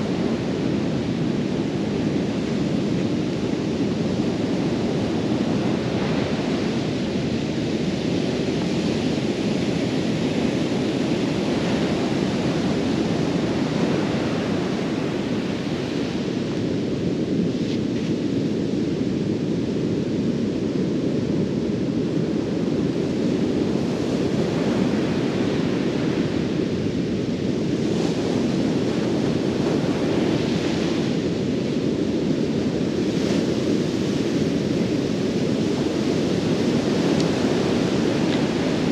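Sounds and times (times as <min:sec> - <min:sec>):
wind on microphone: 0:00.0 - 0:38.9
ocean surf breaking: 0:28.0 - 0:38.9.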